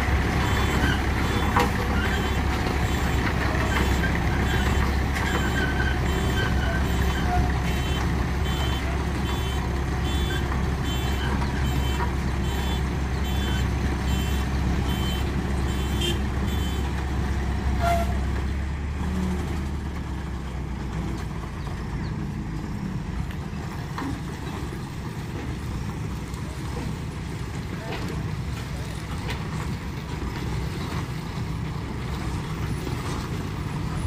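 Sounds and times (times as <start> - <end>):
diesel engines under load: 0.0 - 34.0
reversing alarm beeping: 0.4 - 16.8.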